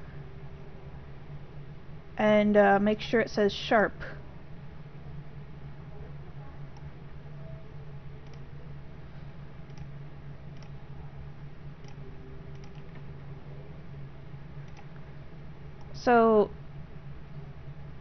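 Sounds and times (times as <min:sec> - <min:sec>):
steady low hum: 0:00.0 - 0:18.0
computer mouse clicks: 0:08.2 - 0:08.4, 0:09.7 - 0:09.9, 0:10.6 - 0:10.8, 0:11.8 - 0:13.0, 0:14.7 - 0:14.9.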